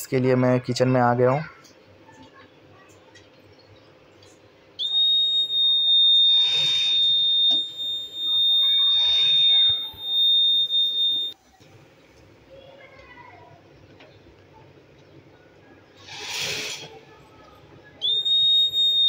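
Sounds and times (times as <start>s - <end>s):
detector buzzer high tone: 4.9s - 11.4s.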